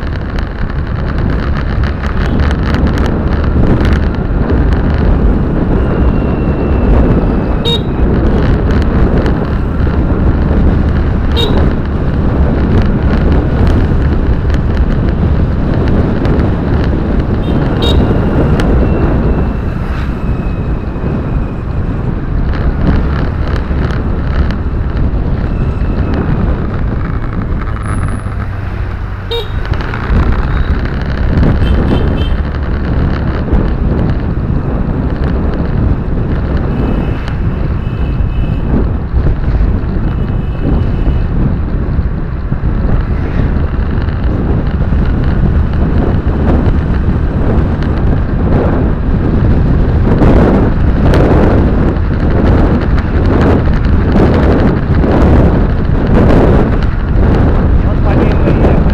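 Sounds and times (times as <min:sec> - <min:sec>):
tyre and engine rumble: 0:00.0 - 0:58.9
wind noise: 0:00.0 - 0:58.9.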